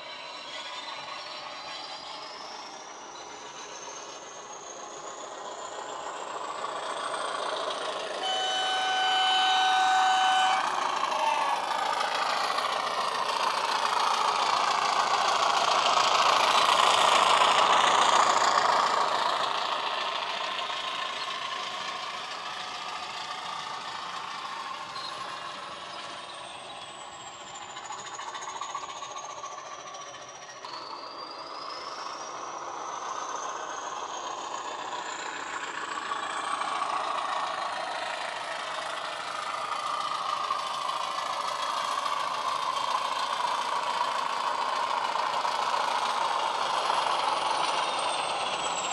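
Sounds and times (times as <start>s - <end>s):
model locomotive diesel sound: 0.0s - 48.9s
locomotive horn: 8.2s - 11.7s.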